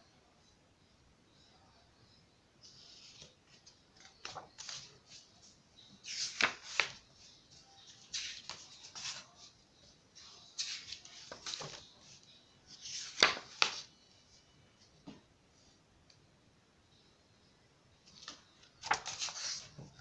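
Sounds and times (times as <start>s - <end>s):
book pages turning: 2.8s - 5.3s, 6.0s - 7.0s, 7.8s - 9.4s, 10.5s - 13.9s, 18.2s - 19.9s.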